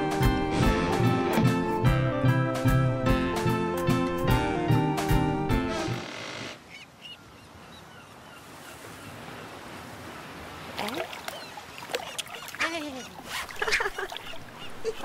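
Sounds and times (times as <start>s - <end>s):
sea waves: 5.7s - 15.0s.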